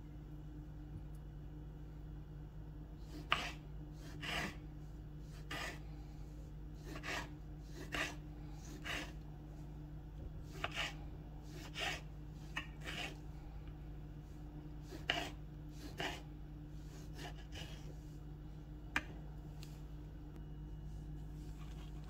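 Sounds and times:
knife slicing tomatoes on board: 0:03.1 - 0:04.6, 0:05.3 - 0:05.8, 0:06.8 - 0:09.2, 0:10.4 - 0:13.2, 0:14.8 - 0:16.2, 0:16.9 - 0:17.9.

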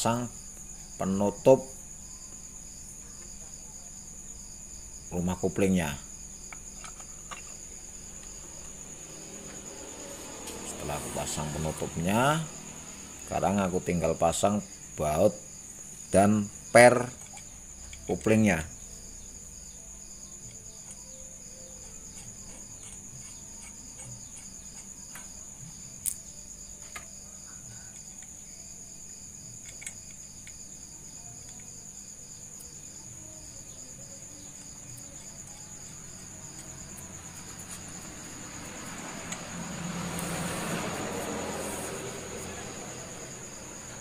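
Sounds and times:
crickets chirring: 0:00.0 - 0:44.0
broad rushing noise: 0:37.6 - 0:44.0.

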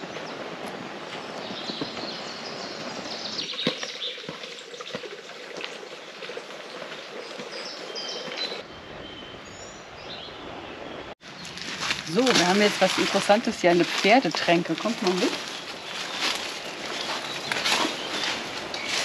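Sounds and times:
steady outdoor hiss: 0:00.0 - 0:19.0
songbirds chirping and singing: 0:06.7 - 0:19.0
footsteps: 0:11.4 - 0:19.0.

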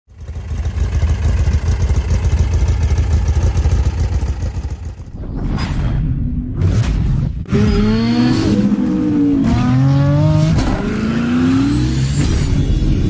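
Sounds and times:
car engine pulsing exhaust: 0:00.1 - 0:05.2.

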